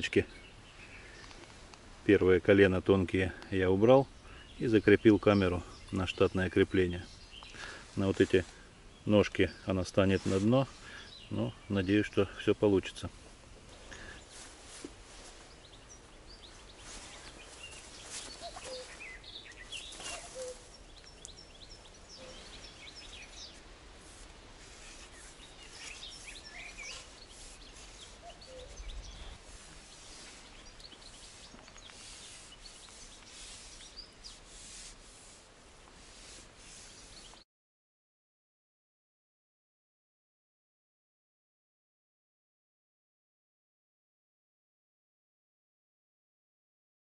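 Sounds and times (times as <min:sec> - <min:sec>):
small birds chirping: 0:00.0 - 0:37.4
pole rustling through reeds: 0:05.3 - 0:37.4.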